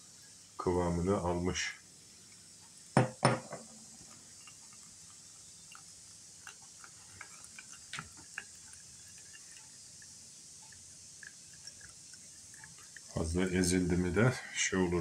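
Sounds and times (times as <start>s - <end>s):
oil dripping: 3.6s - 15.0s.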